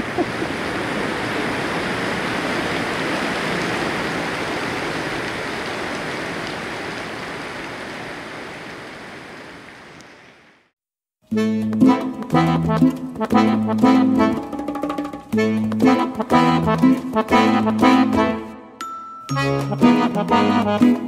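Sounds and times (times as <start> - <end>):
heavy rain: 0.0 - 10.7
music: 11.2 - 21.0.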